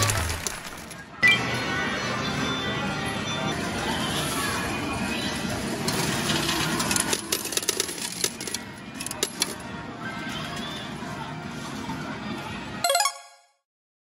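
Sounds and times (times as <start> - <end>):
music: 0.0 - 13.7
arcade din: 12.8 - 13.5.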